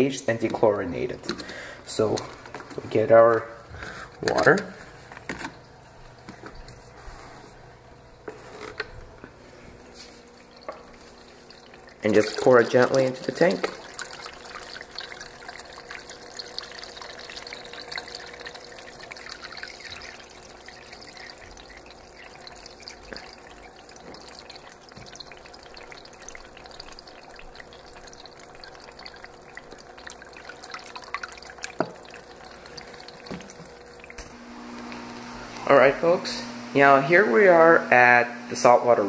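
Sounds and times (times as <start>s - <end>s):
water trickling into aquarium: 0.0s - 36.1s
faint steady hum: 0.0s - 39.0s.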